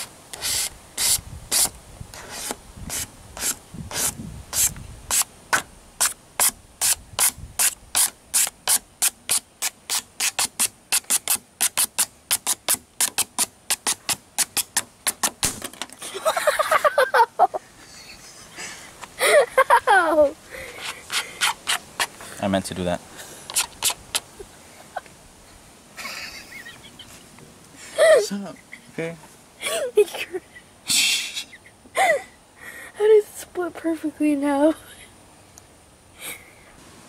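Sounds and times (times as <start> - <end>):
plastic card scraping vinyl sticker: 23.5 - 24.3.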